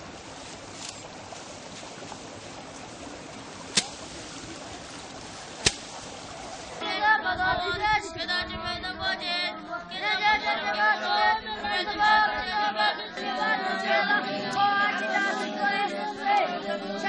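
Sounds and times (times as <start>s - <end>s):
steady hiss: 0.0s - 6.8s
monks chanting in unison: 9.2s - 17.0s.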